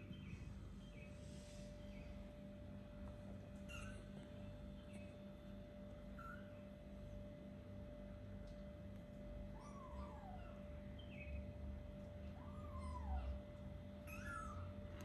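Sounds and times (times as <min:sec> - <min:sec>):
steady low hum: 0:00.0 - 0:15.0
kittens mewing: 0:09.6 - 0:10.7, 0:12.3 - 0:13.4, 0:14.0 - 0:14.7.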